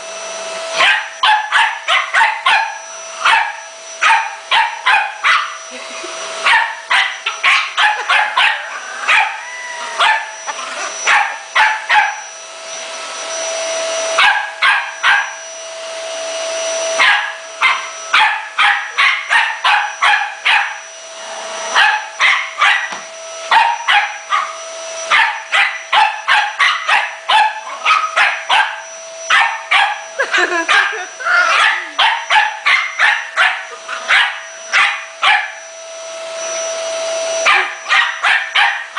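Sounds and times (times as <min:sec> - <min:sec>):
vacuum cleaner whine: 0:00.0 - 0:38.9
small dog barking: 0:00.8 - 0:05.6, 0:06.4 - 0:12.2, 0:14.2 - 0:15.4, 0:17.0 - 0:20.8, 0:21.7 - 0:35.6, 0:37.4 - 0:38.9.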